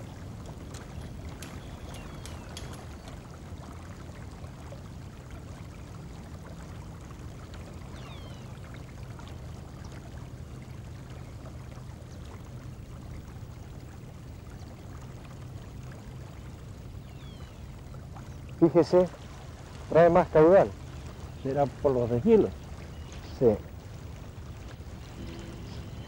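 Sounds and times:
river water flowing: 0.0s - 26.0s
low rumble: 24.2s - 26.0s.

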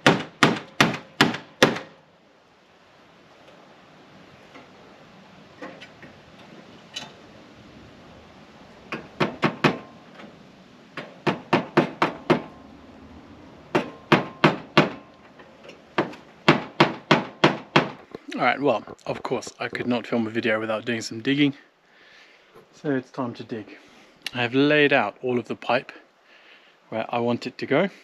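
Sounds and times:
hammer striking metal: 8.9s - 9.9s, 11.0s - 12.6s, 13.7s - 15.1s.

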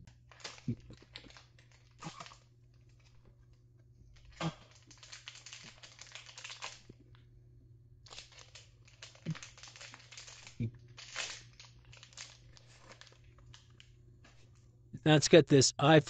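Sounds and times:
crackly rustling: 0.1s - 7.2s, 8.0s - 14.7s
cardboard packaging being handled: 8.1s - 13.3s.

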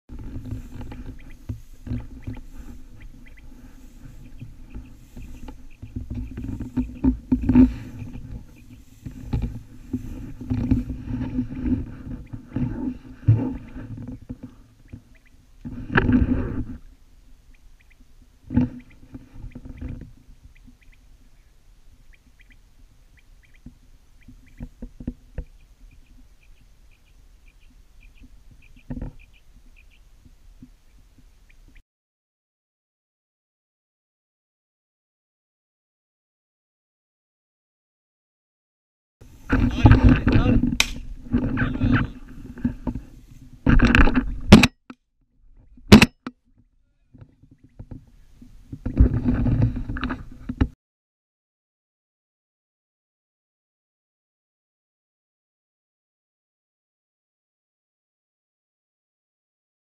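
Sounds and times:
footsteps in wheat: 0.1s - 16.8s.

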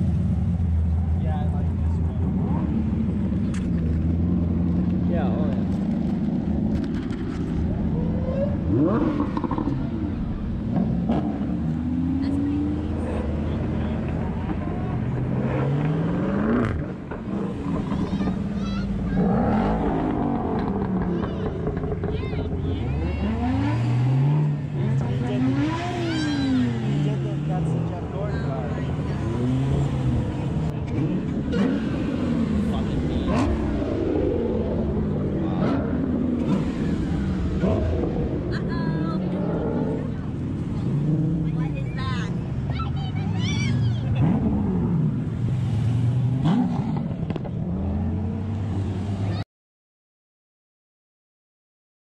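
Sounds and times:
car engine approaching: 0.0s - 49.4s
car engine revving: 0.0s - 49.4s
vehicles idling: 16.9s - 49.4s
car engine driving past: 43.3s - 49.4s.

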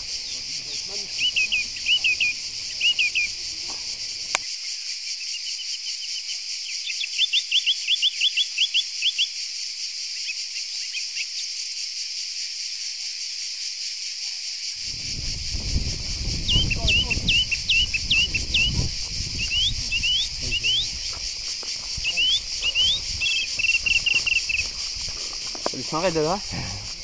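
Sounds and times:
insects chorus pulsing: 0.0s - 27.0s
click: 4.3s - 4.5s.

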